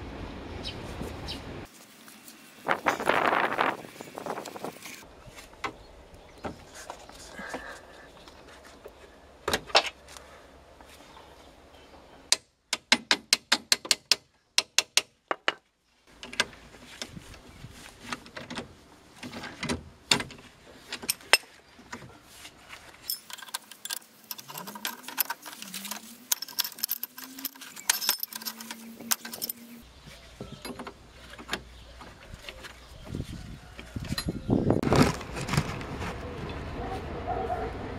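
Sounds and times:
metal hand tools clinking: 0:23.0 - 0:29.8.

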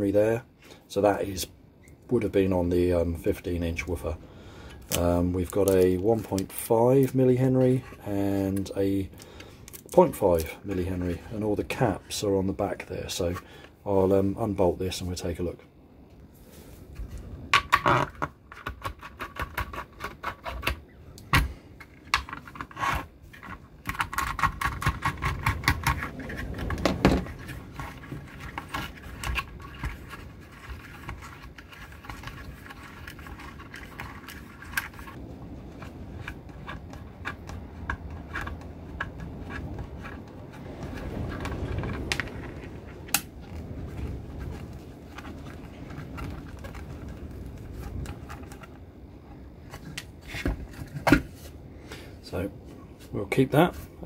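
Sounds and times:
handling noise: 0:16.4 - 0:54.0.

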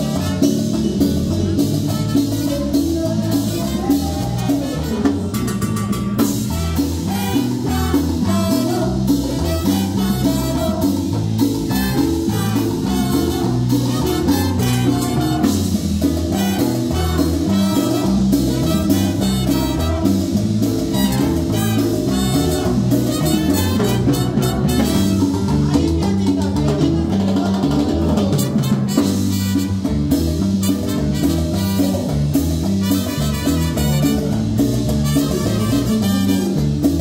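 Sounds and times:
hand drums: 0:00.0 - 0:37.0
latin dance band: 0:00.0 - 0:37.0
women singing: 0:02.6 - 0:05.0.

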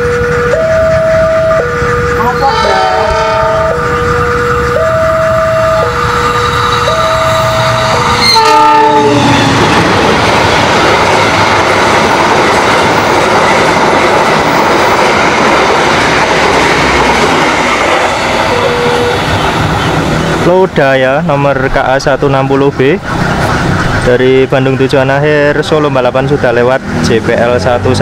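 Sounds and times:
two-note train horn: 0:00.0 - 0:09.3, 0:18.4 - 0:19.4
train carriages clattering past: 0:00.0 - 0:28.0.

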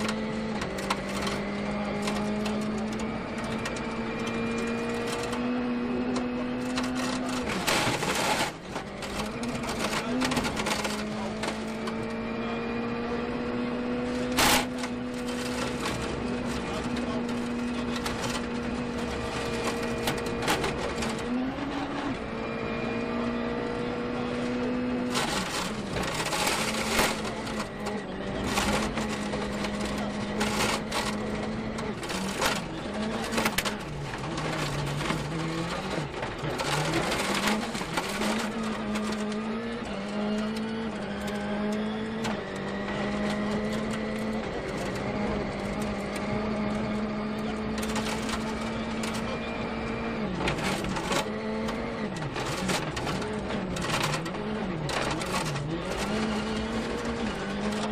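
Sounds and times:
sharp clicks and knocks: 0:00.0 - 0:05.5
rally car engine running: 0:00.0 - 0:57.9.

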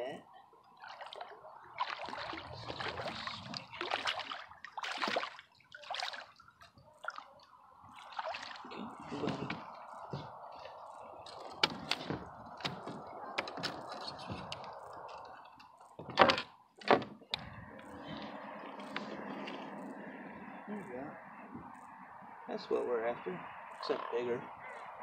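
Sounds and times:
water splashing and dripping: 0:00.6 - 0:16.1.

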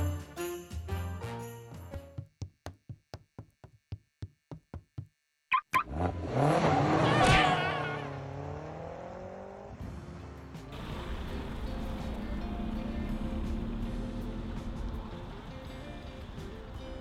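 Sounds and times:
car engine starting and revving: 0:05.8 - 0:16.7.

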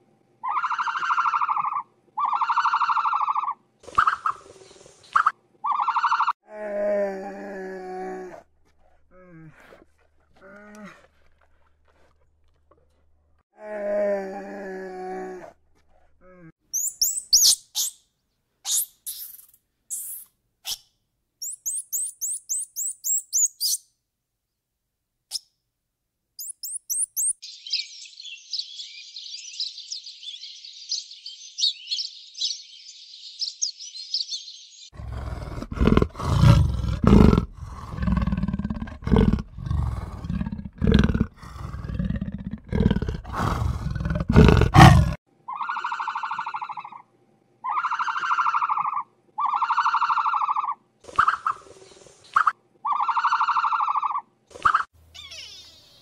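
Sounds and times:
long animal calls: 0:00.4 - 0:04.4, 0:35.0 - 0:51.6, 0:52.8 - 0:55.9
high-pitched chirping: 0:16.8 - 0:18.0, 0:18.7 - 0:20.8, 0:21.4 - 0:23.8, 0:26.4 - 0:30.0
big cat growling and roaring: 0:35.0 - 0:45.2.

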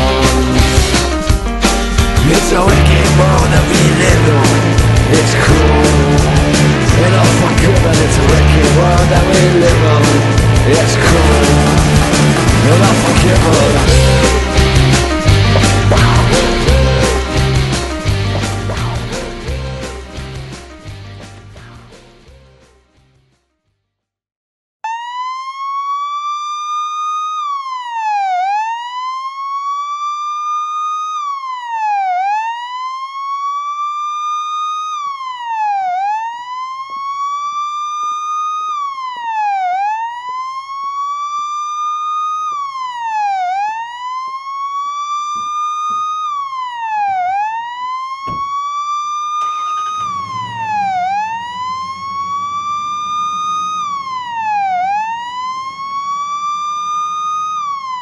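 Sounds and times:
police siren wailing: 0:00.0 - 0:20.7, 0:24.8 - 0:58.0
low rumble: 0:02.2 - 0:21.9, 0:50.0 - 0:57.2.

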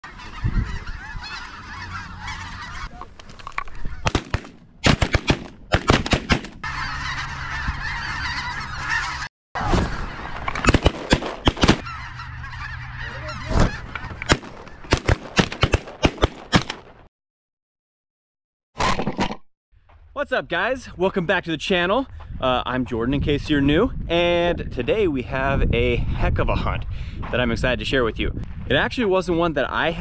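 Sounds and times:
flock of geese honking: 0:00.0 - 0:04.2, 0:06.6 - 0:15.0
shotgun fire: 0:04.0 - 0:06.6, 0:10.6 - 0:11.8, 0:14.3 - 0:16.8.

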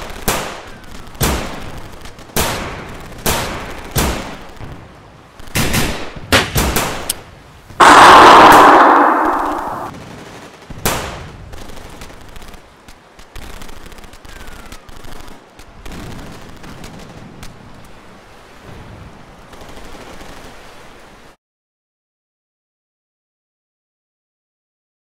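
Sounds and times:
rumbling noisy background: 0:07.5 - 0:17.5
gunshots: 0:07.8 - 0:09.9.

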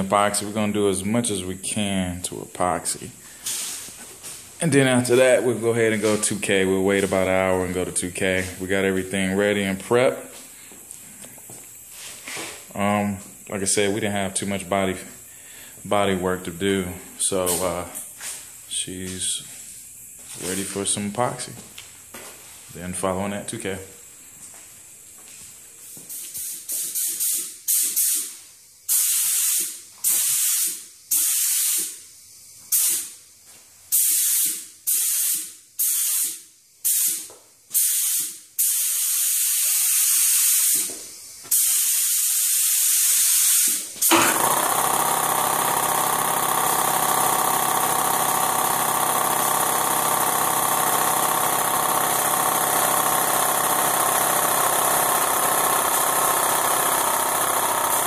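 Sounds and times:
air compressor running: 0:00.0 - 0:58.0
spray gun hissing: 0:03.4 - 0:04.4, 0:25.8 - 0:32.0, 0:32.7 - 0:33.1, 0:33.9 - 0:58.0.

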